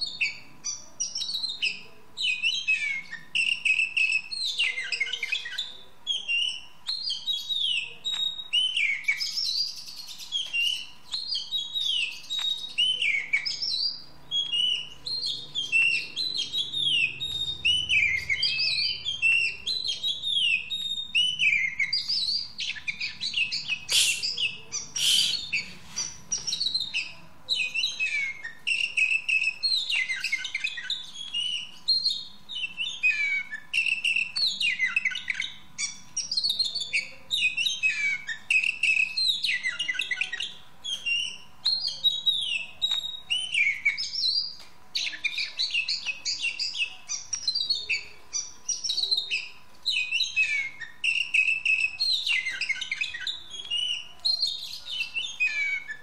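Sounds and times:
bird singing whistled notes: 0.0s - 56.0s.

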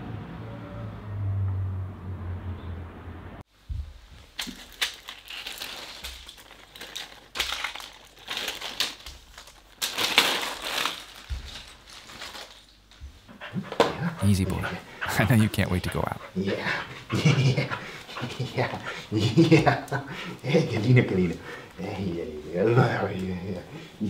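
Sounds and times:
plastic packs crinkling: 4.4s - 12.9s.

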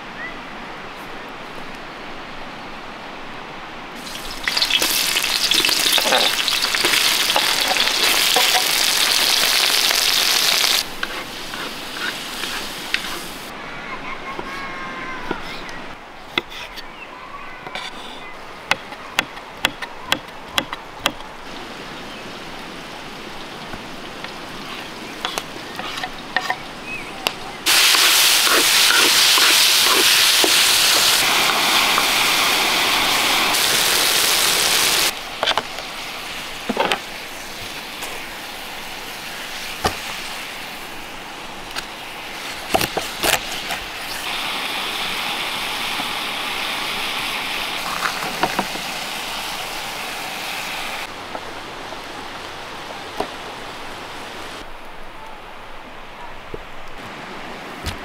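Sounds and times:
vegetables sizzling in oil: 4.0s - 13.5s, 27.6s - 41.0s, 42.0s - 51.1s
wooden spatula stirring: 11.0s - 13.3s, 27.7s - 31.2s.

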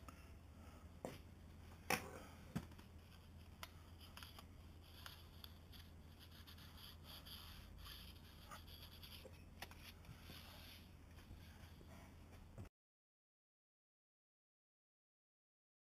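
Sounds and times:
steady low hum: 0.0s - 12.7s.

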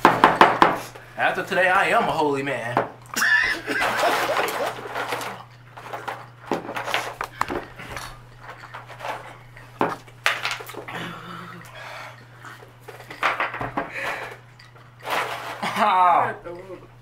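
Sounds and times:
ice cubes clattering in a bin: 3.5s - 7.2s, 15.0s - 16.2s.

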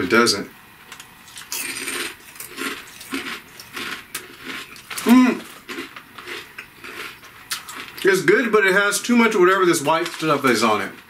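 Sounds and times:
potato chip crunching: 0.9s - 11.0s
person humming: 5.0s - 5.5s.

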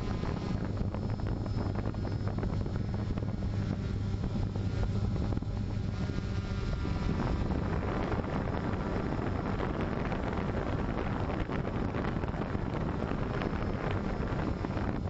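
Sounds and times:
drone propellers humming: 0.0s - 15.0s
wind buffeting microphone: 0.0s - 15.0s.

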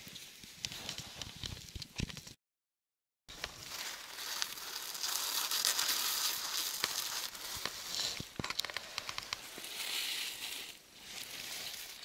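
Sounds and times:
snow and ice crunching: 3.3s - 12.0s.

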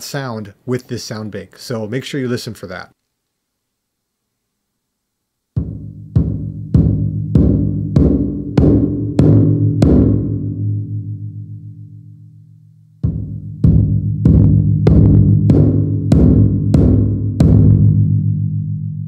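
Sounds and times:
deep electronic taiko drum hits: 5.6s - 11.1s, 13.0s - 19.0s.

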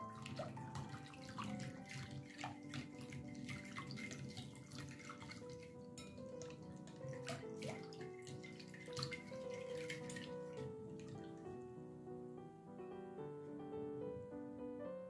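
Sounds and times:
whisk ticking against glass: 0.0s - 10.7s
whisk sloshing liquid: 0.0s - 11.4s
soft background music: 0.0s - 15.0s.

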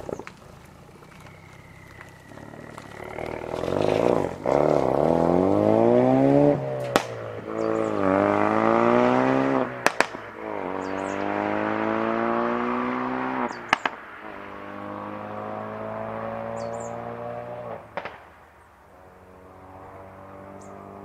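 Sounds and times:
sharp exhaust cracks: 0.0s - 11.9s, 13.4s - 15.0s, 16.6s - 19.5s
car engine accelerating hard: 0.0s - 18.1s, 19.0s - 21.0s.

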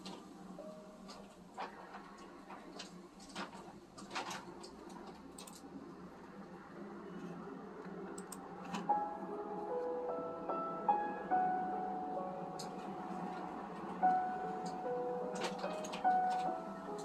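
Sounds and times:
piano music: 0.0s - 2.5s, 8.4s - 17.0s
computer mouse clicks: 8.2s - 8.4s.

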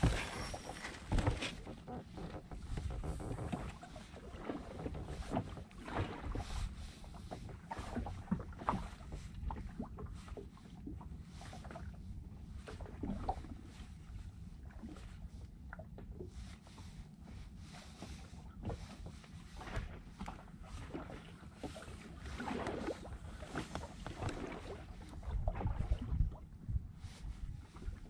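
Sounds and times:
wind on microphone: 0.0s - 1.4s, 24.0s - 28.0s
small waves lapping against boat: 0.0s - 28.0s.

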